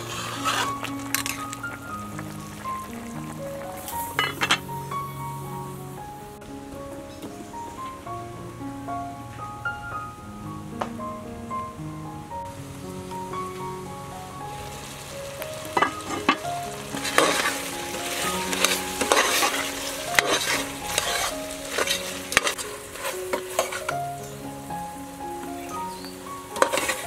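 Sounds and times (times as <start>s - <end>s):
metal ladle scraping a pot: 0.0s - 1.7s, 4.1s - 4.6s, 15.8s - 16.4s, 17.0s - 24.0s, 26.6s - 27.0s
meat sizzling in a pot: 0.0s - 6.1s, 12.5s - 27.0s
soft background music: 0.0s - 27.0s
ladle clattering: 0.2s - 2.3s, 4.1s - 4.7s, 15.7s - 24.1s, 26.5s - 27.0s.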